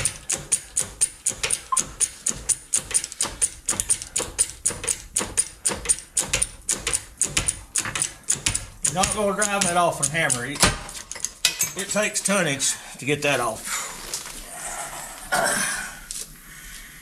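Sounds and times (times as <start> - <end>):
ratchet wrench clicking: 0.0 - 11.6.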